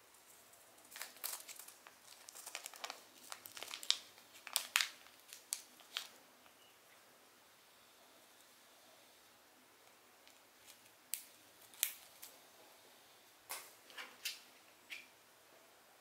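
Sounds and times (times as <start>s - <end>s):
plastic bag crinkling: 0.6s - 6.2s, 10.3s - 12.4s.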